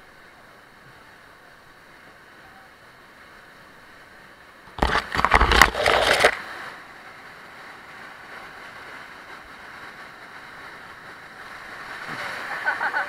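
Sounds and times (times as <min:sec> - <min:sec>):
rushing rapids: 0:00.0 - 0:13.0
water splashing over raft: 0:07.9 - 0:13.0.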